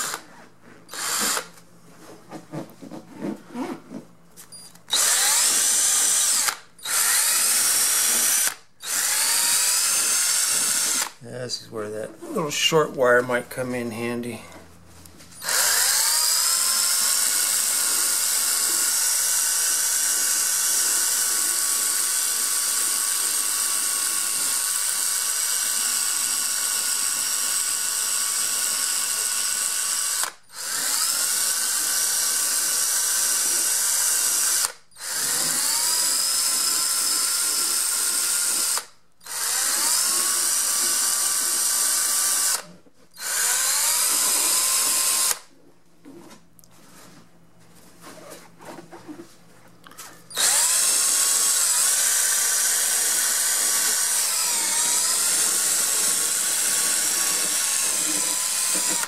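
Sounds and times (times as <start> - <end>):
drill grinding foam: 0.0 - 1.6, 4.9 - 11.2, 15.4 - 45.5, 50.0 - 59.0.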